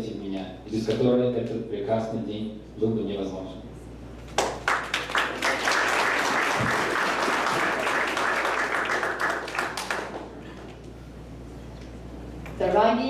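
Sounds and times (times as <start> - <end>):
crowd applauding: 4.4 - 10.6.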